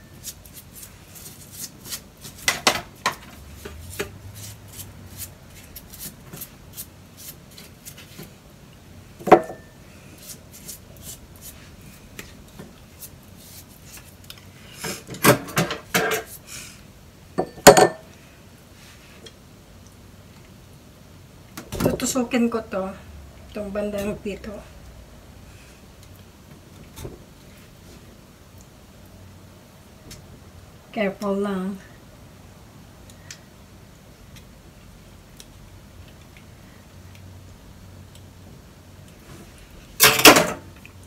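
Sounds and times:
metal kitchenware clattering in sink: 40.0 - 40.6.

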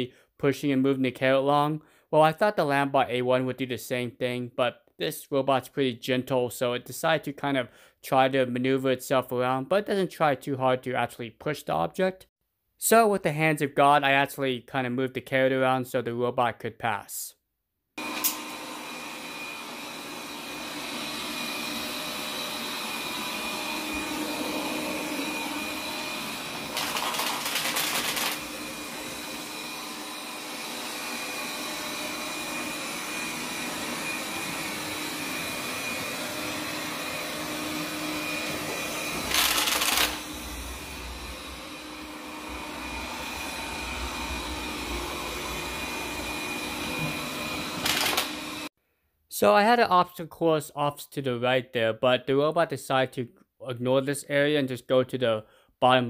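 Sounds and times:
robot vacuum running: 18.0 - 48.7.

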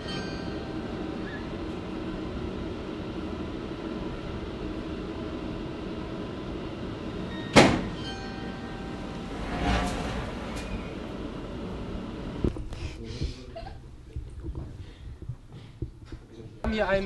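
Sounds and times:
steady background hum: 0.0 - 17.0.

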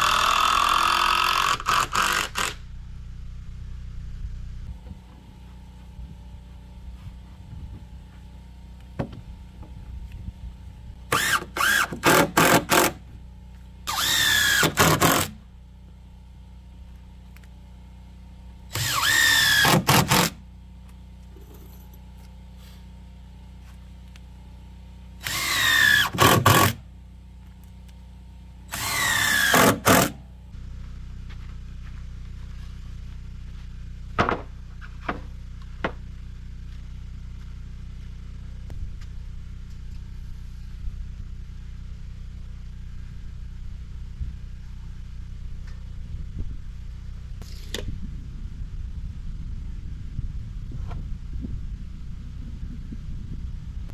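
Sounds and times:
cordless drill driving into wood: 0.0 - 2.6, 11.1 - 13.0, 13.9 - 15.4, 18.7 - 20.4, 25.2 - 26.8, 28.7 - 30.2.

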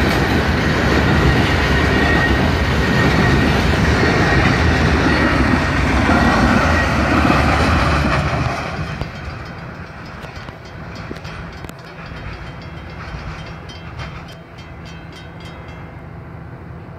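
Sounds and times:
train wheels rumbling on rails: 0.0 - 16.9.

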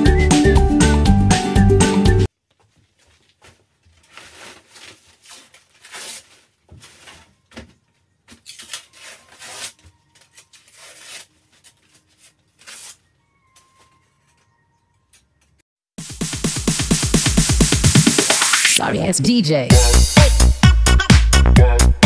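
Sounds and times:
wallpaper ripping and scraping: 2.7 - 7.4, 8.3 - 13.1.

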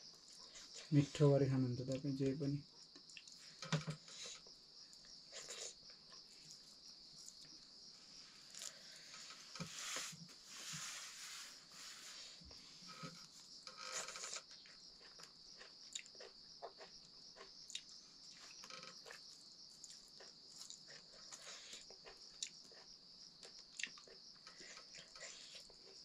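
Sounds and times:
insects chirring: 0.0 - 26.0
soft chewing: 2.9 - 7.7, 12.4 - 26.0.

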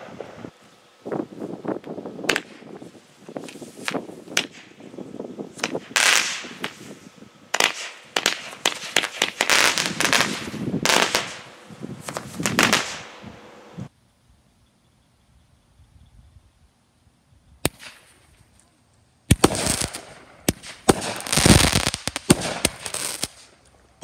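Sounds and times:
fireworks popping and crackling: 0.0 - 0.6, 1.2 - 13.4, 17.6 - 18.7, 19.3 - 24.0
fireworks hissing: 0.0 - 13.9, 19.2 - 24.0.

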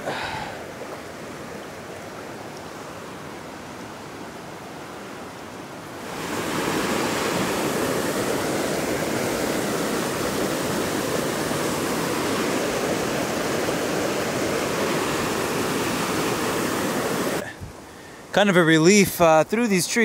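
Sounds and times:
creek rushing over boulders: 0.0 - 17.7.

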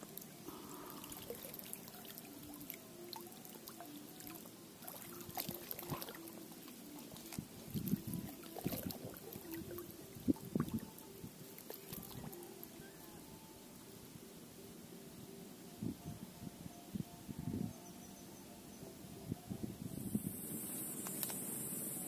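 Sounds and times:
shallow water sloshing and trickling: 0.0 - 13.0
small clicks: 21.0 - 21.5.

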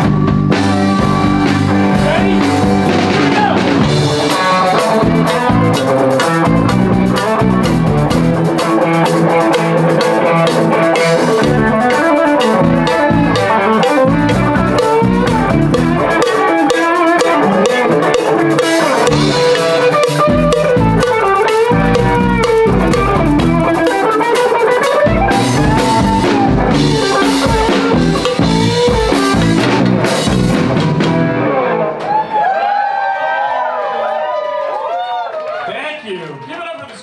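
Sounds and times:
live rock band playing: 0.0 - 32.6
electric guitar: 0.0 - 33.5.

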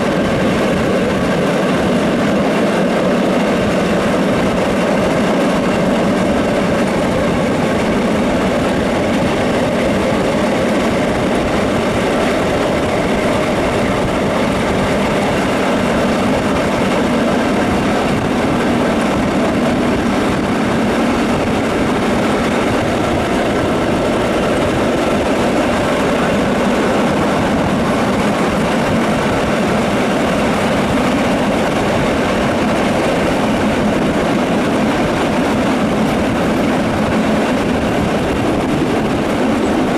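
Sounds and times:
train wheels rumbling on rails: 0.0 - 39.9.

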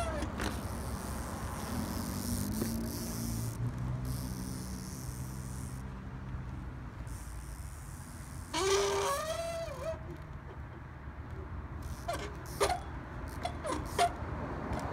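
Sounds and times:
vehicle engine running: 0.0 - 8.5.

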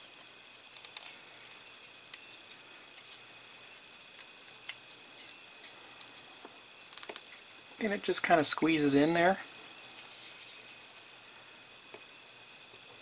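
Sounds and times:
small plastic clicks and ticks: 0.0 - 2.2, 6.9 - 7.3.

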